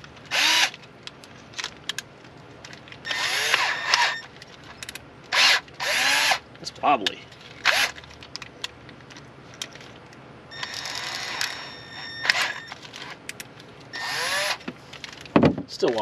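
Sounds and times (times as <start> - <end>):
cordless drill whining: 0.3 - 0.8, 3.0 - 4.3, 5.3 - 6.4, 10.5 - 12.8, 13.9 - 14.7.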